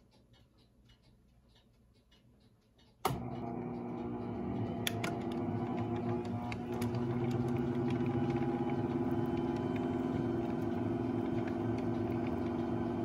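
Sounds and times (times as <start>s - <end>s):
pump motor humming: 3.2s - 13.0s.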